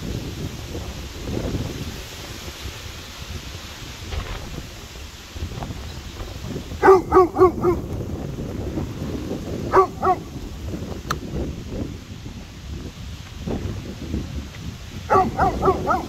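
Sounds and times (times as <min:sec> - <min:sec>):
dog barking: 0:06.8 - 0:07.9, 0:09.7 - 0:10.4, 0:15.1 - 0:16.0.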